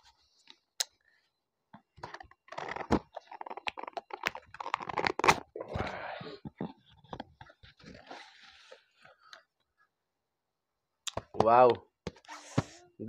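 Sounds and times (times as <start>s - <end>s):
tape tearing: 2.5s - 5.5s.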